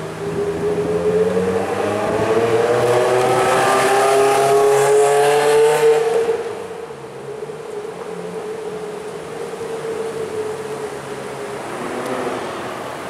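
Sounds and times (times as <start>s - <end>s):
car engine accelerating hard: 0.8s - 6.6s.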